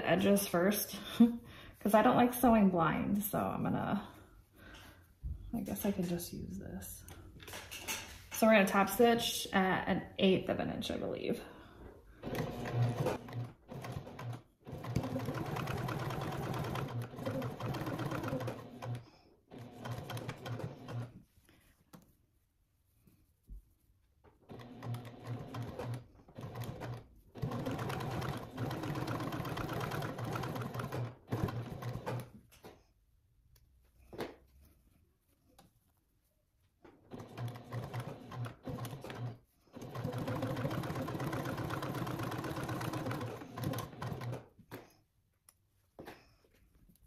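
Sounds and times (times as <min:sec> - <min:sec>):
sewing machine stitching: 0:12.2 - 0:21.2, 0:24.4 - 0:32.4, 0:37.0 - 0:44.8.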